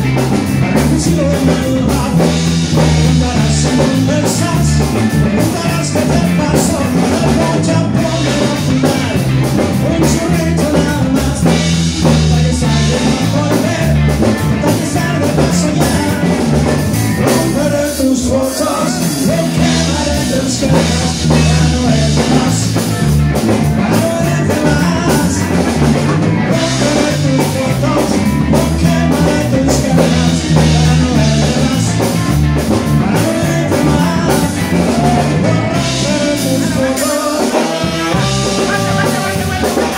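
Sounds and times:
man singing: 0.0s - 39.9s
rock band playing: 0.0s - 39.9s
saxophone and trumpet: 37.7s - 39.9s.

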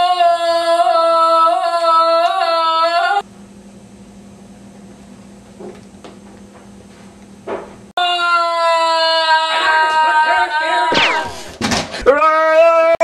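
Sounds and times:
boy screaming: 8.0s - 10.9s
low hum: 10.9s - 11.6s.

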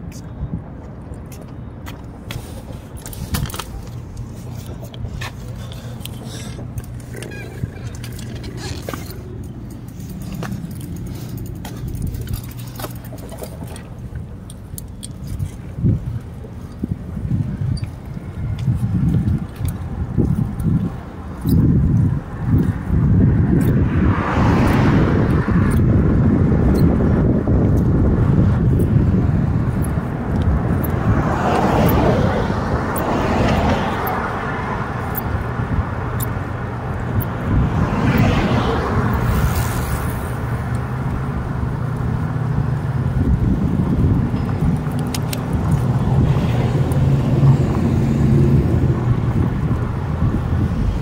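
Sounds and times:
light clicks and rattles: 1.0s - 16.9s
bicycle tyres rumbling on asphalt: 1.8s - 51.0s.

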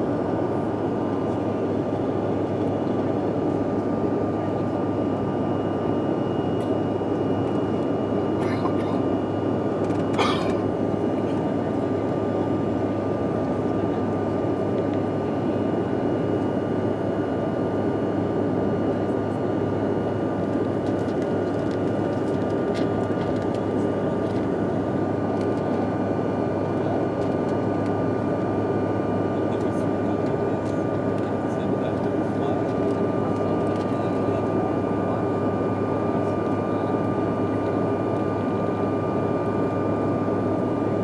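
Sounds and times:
high engine whine: 0.0s - 41.0s
jet airliner cabin noise: 0.0s - 41.0s.

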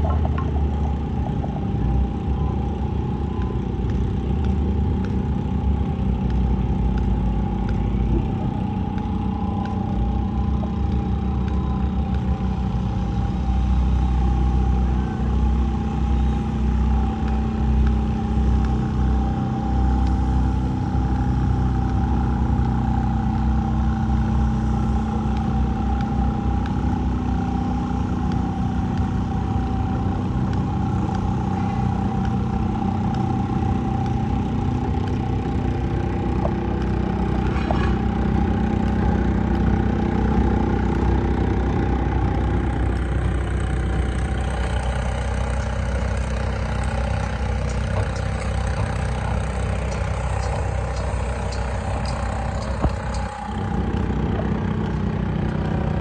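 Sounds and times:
engine droning with whine: 0.0s - 56.0s.

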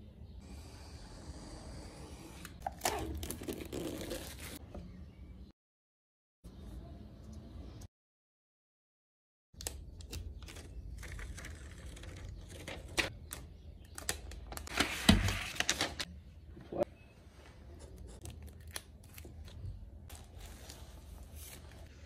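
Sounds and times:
paper and cardboard rustling: 14.6s - 16.1s.

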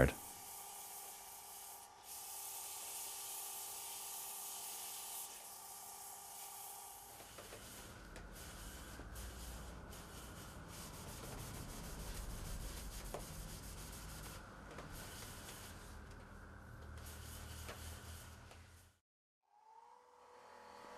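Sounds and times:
paper towel rubbing spinning wood: 0.2s - 16.0s.

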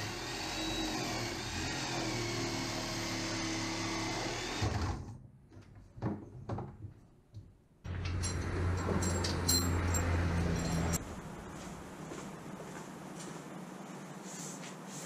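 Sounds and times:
jigsaw cutting wood: 0.0s - 5.1s.

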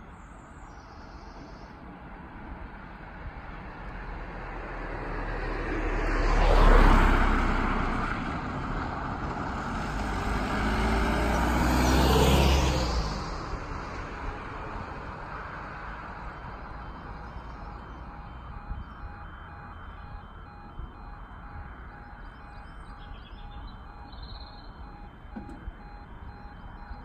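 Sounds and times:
van passing: 0.0s - 27.0s
car passing: 2.6s - 27.0s.

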